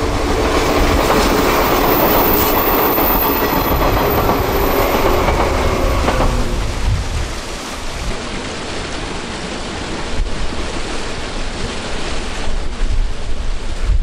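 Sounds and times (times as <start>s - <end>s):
electric train passing: 0.0s - 7.7s.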